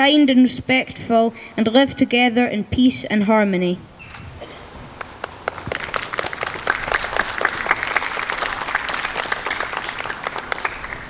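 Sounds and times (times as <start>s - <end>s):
group of people clapping: 5.0s - 11.0s.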